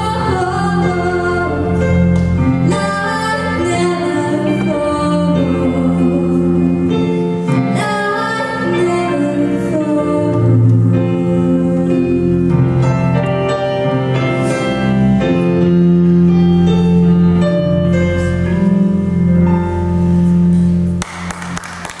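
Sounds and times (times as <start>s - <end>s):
woman singing: 0.0s - 2.0s, 2.6s - 12.6s
electric bass: 0.0s - 21.1s
live band music: 6.2s - 21.0s
audience applause: 21.0s - 22.0s.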